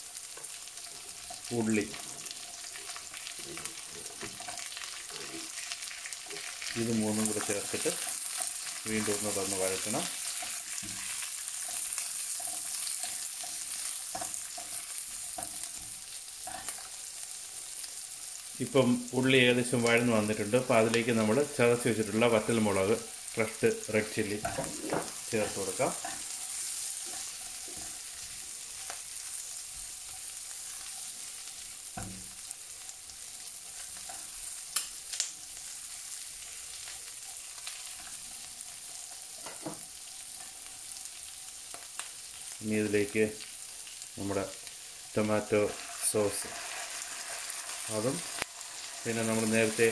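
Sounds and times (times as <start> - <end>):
spatula stirring vegetables: 0.0 - 49.9
vegetables sizzling in hot oil: 0.0 - 49.9
utensil scraping through pan: 24.0 - 29.0.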